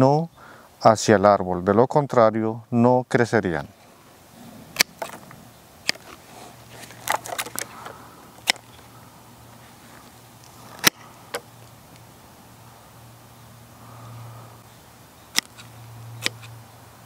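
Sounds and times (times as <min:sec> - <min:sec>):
pruning shears snipping: 0:04.7 - 0:08.8, 0:10.4 - 0:12.1, 0:15.3 - 0:16.6.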